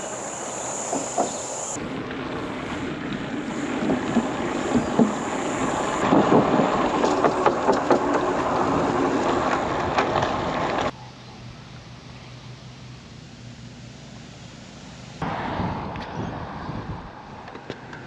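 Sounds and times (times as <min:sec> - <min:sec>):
bicycle tyre noise: 0:00.0 - 0:11.0
sharp clicks and rattles: 0:06.0 - 0:10.9
wind rushing over microphone: 0:15.2 - 0:18.0.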